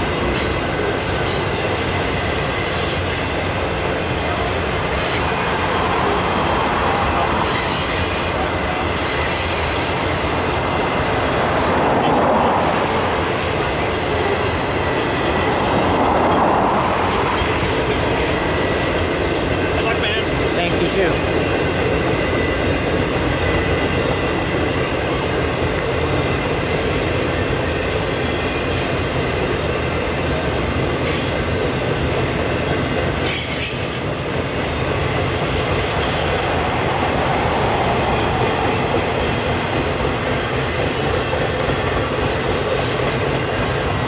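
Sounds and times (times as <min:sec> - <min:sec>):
train wheels rumbling on rails: 0:00.0 - 0:44.0.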